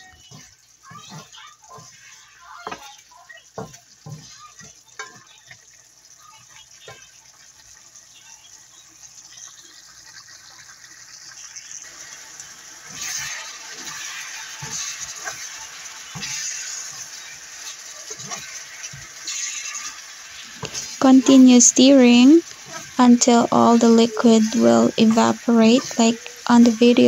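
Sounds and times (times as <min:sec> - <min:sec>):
wooden spatula scraping a pan: 0:00.0 - 0:05.6, 0:12.8 - 0:27.0
meat sizzling in sauce: 0:00.0 - 0:27.0.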